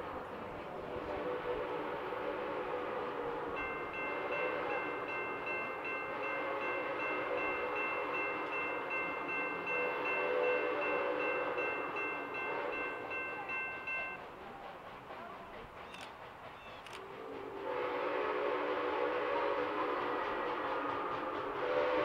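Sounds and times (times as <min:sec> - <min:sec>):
steam locomotive chime whistle: 0:00.8 - 0:14.6, 0:15.8 - 0:22.0
railroad crossing bell dinging: 0:03.5 - 0:14.3.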